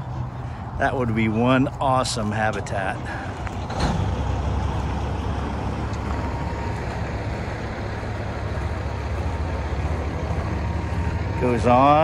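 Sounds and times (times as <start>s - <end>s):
truck diesel engine idling: 0.0s - 12.0s.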